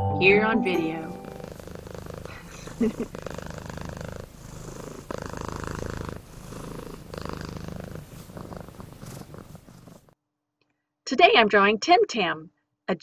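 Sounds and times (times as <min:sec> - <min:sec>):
cat purring: 0:01.0 - 0:10.2.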